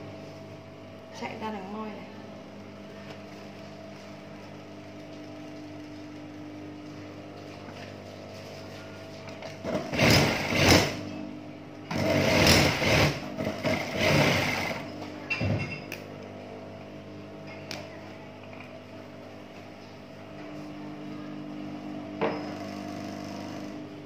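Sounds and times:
steady low hum: 0.0 - 24.0
sewing machine stitching: 9.7 - 11.0, 11.9 - 14.8.

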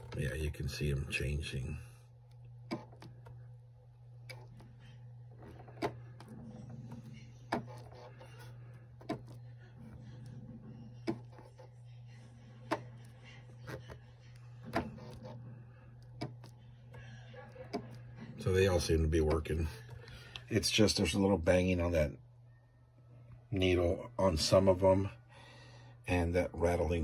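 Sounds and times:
sewing machine low hum: 0.0 - 21.2.

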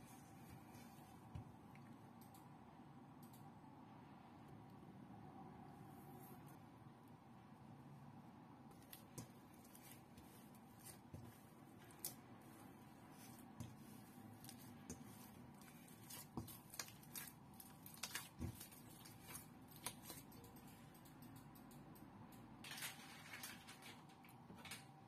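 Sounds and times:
hands kneading dough in metal bowl: 8.7 - 21.1.

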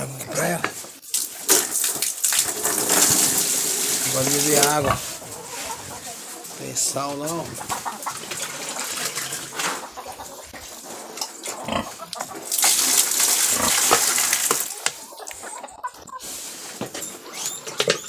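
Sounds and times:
pigs grunting: 0.0 - 0.8, 2.7 - 14.5
water splashing from a bag: 1.0 - 4.7, 12.4 - 14.8.

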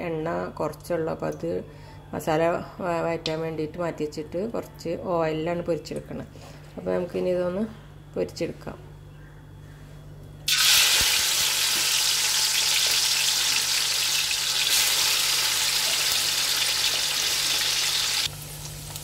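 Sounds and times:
prawns sizzling in hot oil: 10.5 - 19.0.

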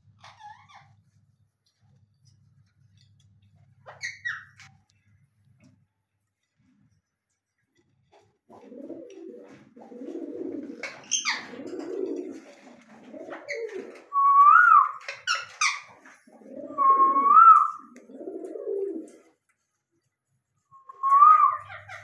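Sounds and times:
pigeons cooing: 8.5 - 19.4.

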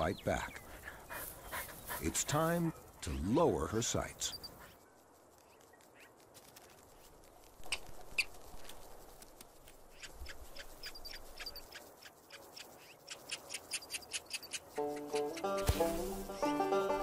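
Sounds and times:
ground squirrel chirping: 9.8 - 15.5.

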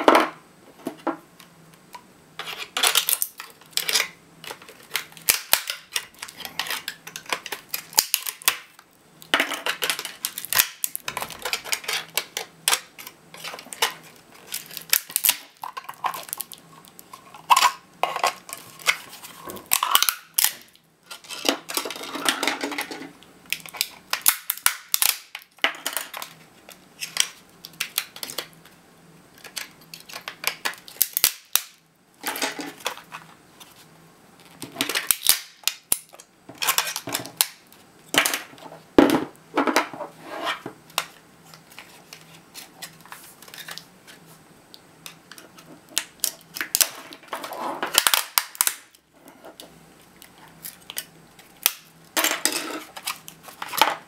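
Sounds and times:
plastic case cracking and snapping: 9.3 - 16.6, 47.9 - 48.9.

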